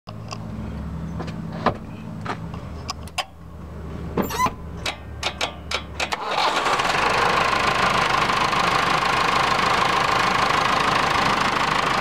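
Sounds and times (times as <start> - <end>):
tractor diesel engine idling: 5.4 - 12.0.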